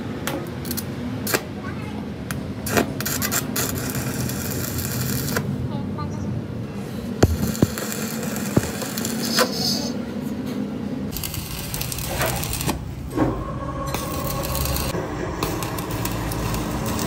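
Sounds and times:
arc welding crackling: 2.6 - 5.5, 7.2 - 9.9, 11.1 - 13.2, 13.9 - 17.0
welding pops: 7.2 - 9.4.

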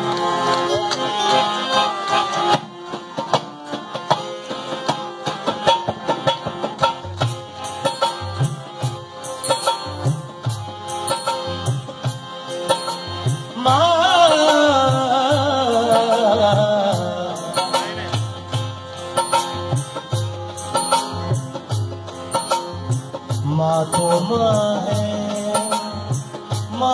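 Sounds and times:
dholak drumming: 0.0 - 26.9
harmonium: 0.0 - 26.9.

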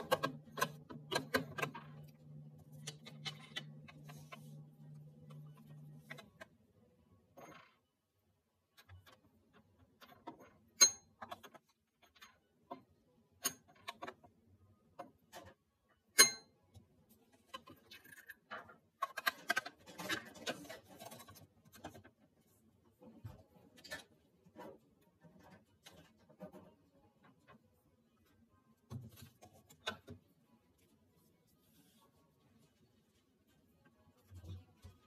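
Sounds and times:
spoon scraping plastic containers: 0.0 - 6.6, 17.4 - 22.2.

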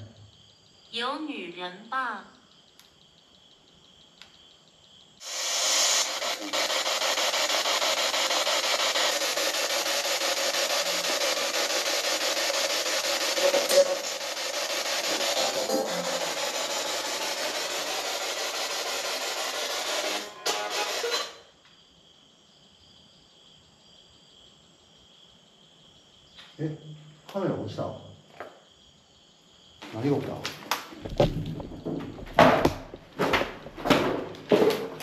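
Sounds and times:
radio static hiss: 5.2 - 7.4.

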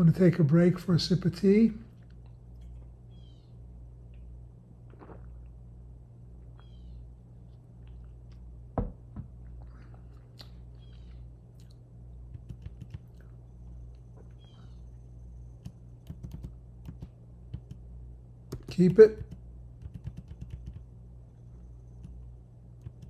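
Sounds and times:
electrical hum: 0.0 - 23.0
sipping tea: 4.8 - 5.6
thunk: 8.8 - 9.3
computer keyboard clicks: 12.4 - 13.1, 15.6 - 17.8, 18.5 - 20.8.

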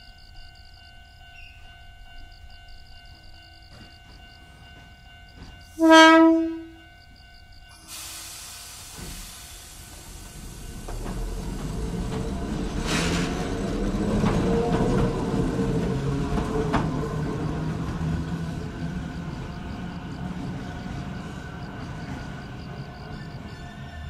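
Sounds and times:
railcar rumble: 0.0 - 24.0
air hiss: 7.8 - 11.0.

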